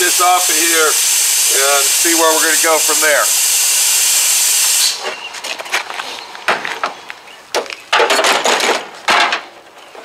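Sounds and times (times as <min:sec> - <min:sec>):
sheet metal clanking and scraping: 0:07.9 - 0:09.6.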